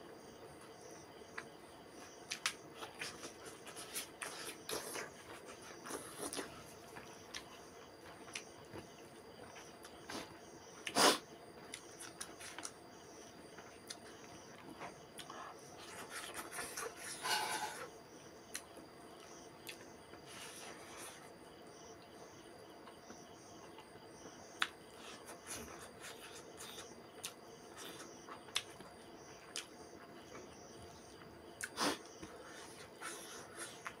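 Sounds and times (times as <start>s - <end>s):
chewing with wet mouth clicks: 25.4s - 28.9s.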